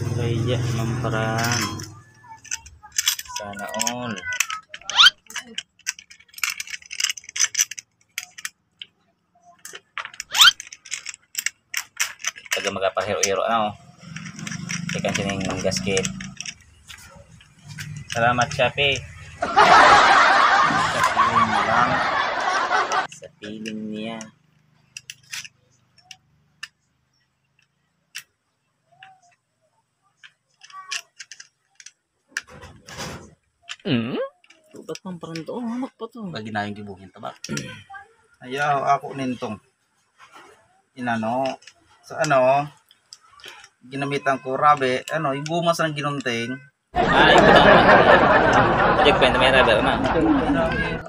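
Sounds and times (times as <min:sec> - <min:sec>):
plastic and metal parts clicking: 0:01.4 - 0:19.4, 0:23.0 - 0:29.5, 0:30.2 - 0:35.5, 0:37.3 - 0:37.7, 0:41.2 - 0:46.4.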